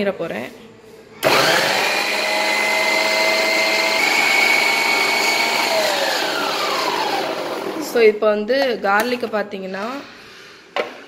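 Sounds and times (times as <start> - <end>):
food processor motor whining: 1.2 - 8.0.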